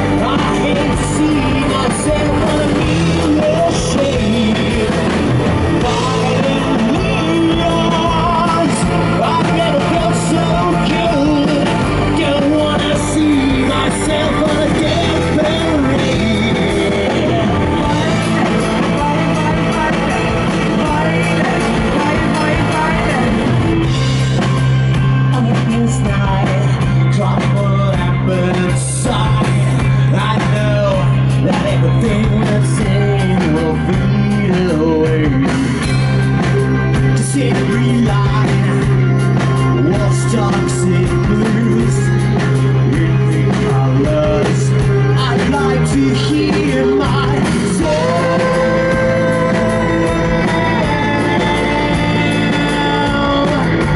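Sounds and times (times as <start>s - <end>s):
person singing: 0.0s - 53.9s
rock band playing live: 0.0s - 53.9s.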